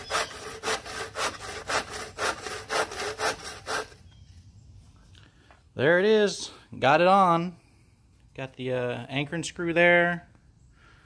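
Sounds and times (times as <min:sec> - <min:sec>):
hand saw cutting wood: 0:00.0 - 0:04.0.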